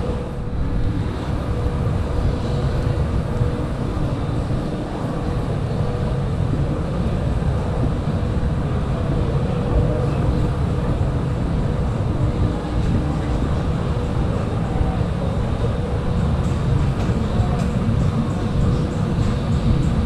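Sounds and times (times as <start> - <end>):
faint steady hums: 0.0 - 20.0
low city rumble: 0.0 - 20.0.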